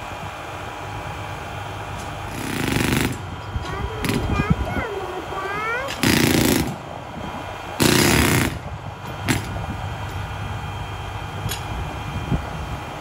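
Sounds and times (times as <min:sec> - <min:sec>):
engine running low: 0:00.0 - 0:13.0
jackhammer rattling burst: 0:02.3 - 0:03.2, 0:03.9 - 0:04.5, 0:05.8 - 0:06.8, 0:07.8 - 0:09.5.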